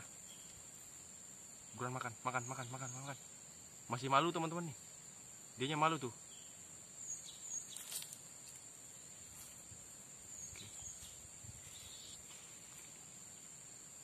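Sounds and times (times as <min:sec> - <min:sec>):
high-pitched insect drone: 0:00.0 - 0:14.0
soft rustles: 0:07.7 - 0:09.8, 0:10.5 - 0:13.2.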